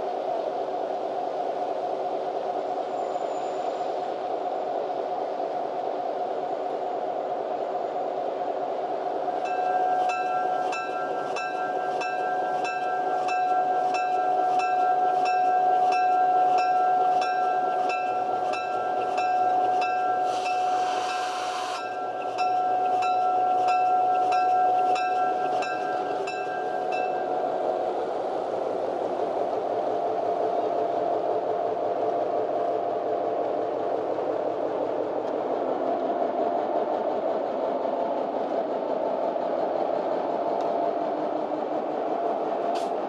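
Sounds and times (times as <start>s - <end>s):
diesel locomotive running: 0.0s - 43.0s
railroad crossing bell ringing: 9.4s - 27.4s.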